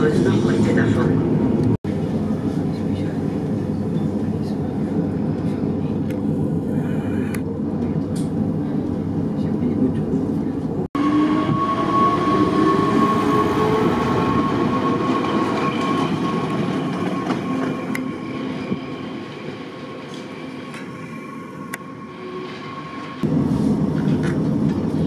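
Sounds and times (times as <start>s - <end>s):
electric train passing: 11.0s - 24.6s.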